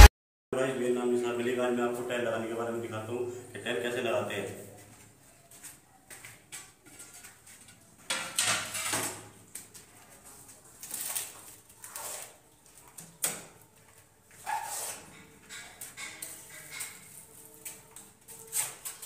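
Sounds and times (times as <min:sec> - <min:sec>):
ceramic tile scraping on concrete: 0:14.4 - 0:17.3.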